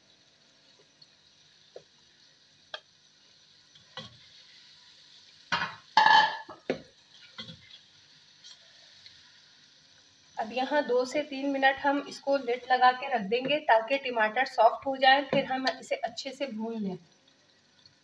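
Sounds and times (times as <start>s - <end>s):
vegetables sizzling in oil: 0.0s - 18.0s
spatula scraping a pan: 7.1s - 8.7s.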